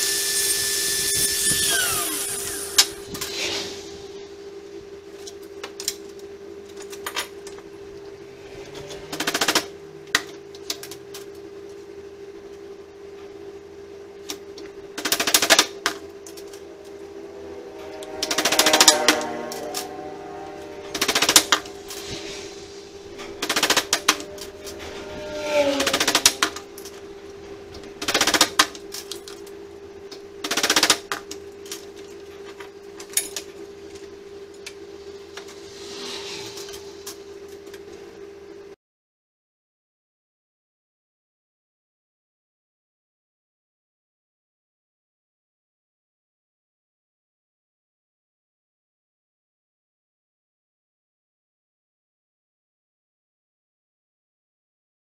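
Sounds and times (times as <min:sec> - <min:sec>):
steady low hum: 0:00.0 - 0:38.8.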